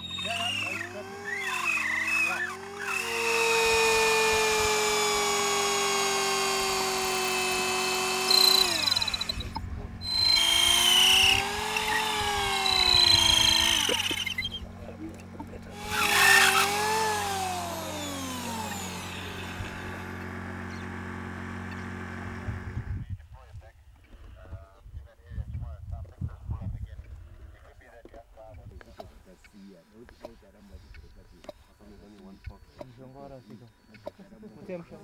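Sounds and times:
motor whine gliding in pitch: 0.0 - 23.0
steady low hum: 0.0 - 35.0.

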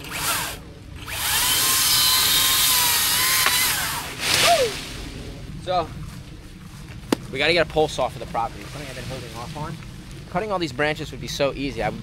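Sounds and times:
power saw cutting branch: 0.0 - 4.8.

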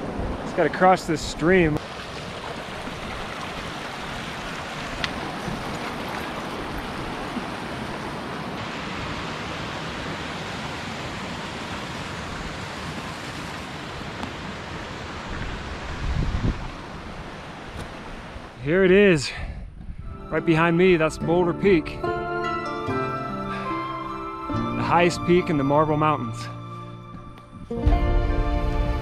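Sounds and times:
stream rushing over rocks: 0.0 - 18.6.

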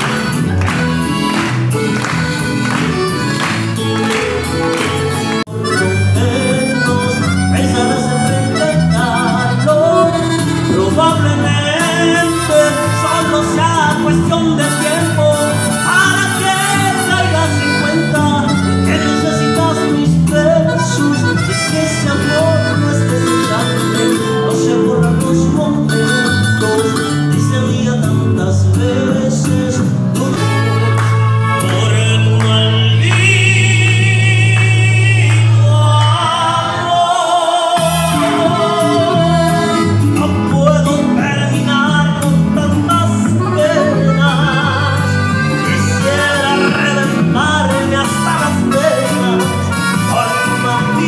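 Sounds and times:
hand-clapping: 0.0 - 5.7, 30.8 - 36.2
instrumental accompaniment: 0.0 - 36.7, 37.7 - 51.0
man singing into a microphone: 5.2 - 51.0.

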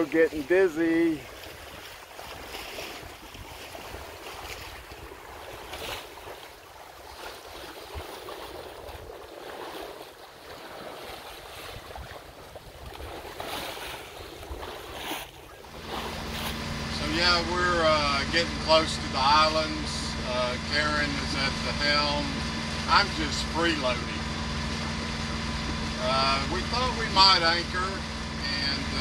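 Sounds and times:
water rushing past hull: 0.0 - 29.0
wind buffeting microphone: 11.4 - 17.0
steady low hum: 15.4 - 29.0.

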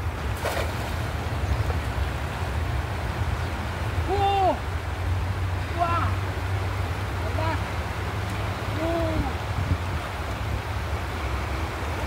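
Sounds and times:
river flowing over stones: 0.0 - 12.0.

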